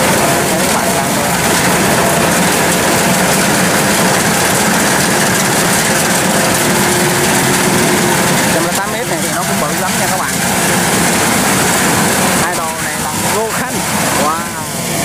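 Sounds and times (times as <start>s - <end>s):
combine harvester engine running: 0.0s - 15.0s.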